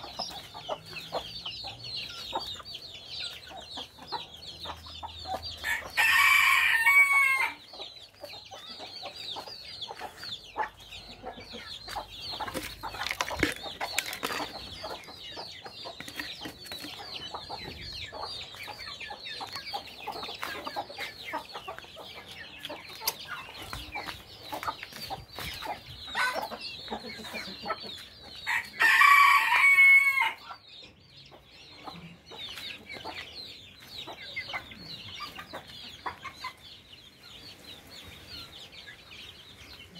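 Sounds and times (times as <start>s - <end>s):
chickens clucking and chirping: 0.0s - 39.9s
rooster crowing: 5.6s - 7.6s, 28.5s - 30.4s.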